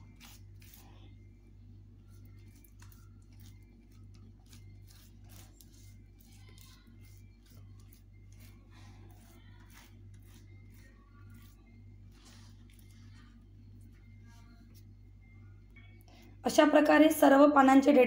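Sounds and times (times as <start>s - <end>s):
fingers rubbing wet paste: 0.0s - 1.1s, 2.0s - 15.1s
steady low hum: 0.0s - 18.0s.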